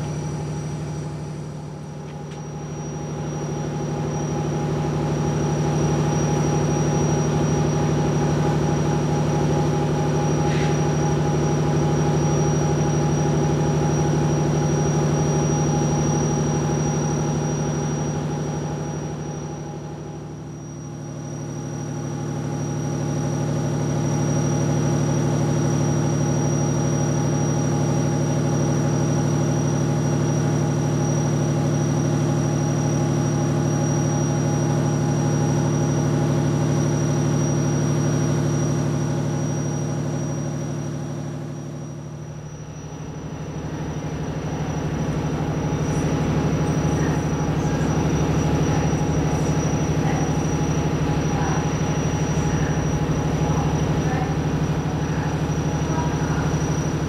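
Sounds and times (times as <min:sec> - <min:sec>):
train humming drone: 0:00.0 - 0:22.6, 0:40.5 - 0:57.0
high whine: 0:00.0 - 0:57.0.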